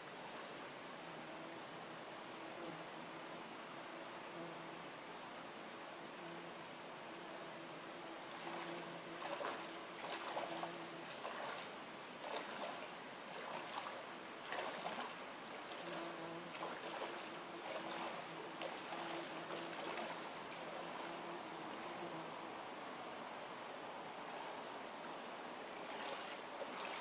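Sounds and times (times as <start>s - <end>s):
faint low hum: 0.0s - 27.0s
river flowing: 0.0s - 27.0s
feet splashing through water: 9.2s - 21.1s, 25.8s - 27.0s.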